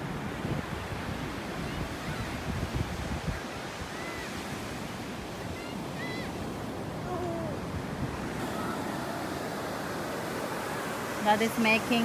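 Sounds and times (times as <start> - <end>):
ocean surf breaking: 0.0 - 12.0
faint high cries: 5.4 - 7.7, 8.4 - 9.3.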